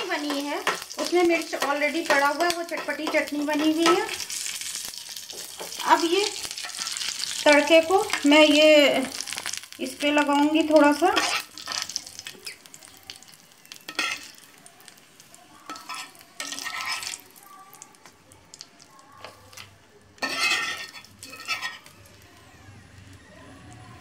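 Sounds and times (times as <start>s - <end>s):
hot oil sizzling: 0.0s - 24.0s
steel ladle scraping a pan: 11.1s - 12.6s, 13.9s - 14.4s, 15.7s - 17.2s, 19.5s - 21.9s.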